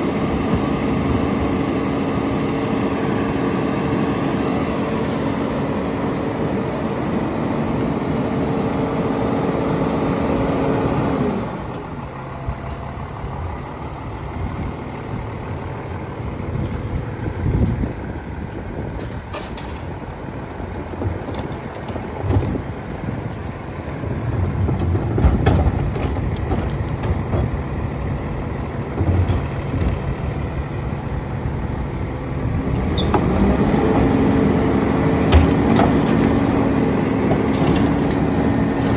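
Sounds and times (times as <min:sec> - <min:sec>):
garbage truck engine and hydraulics: 0:00.0 - 0:38.9
clanks and knocks at hopper: 0:24.4 - 0:27.6, 0:35.2 - 0:36.6.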